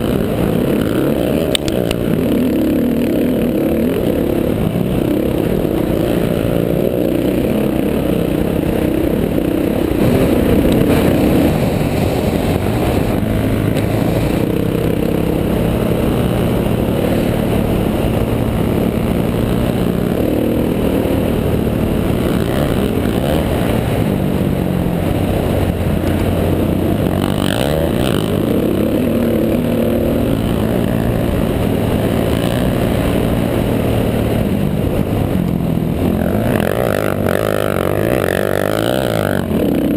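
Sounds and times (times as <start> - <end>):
quad bike engine revving: 0.0 - 39.9.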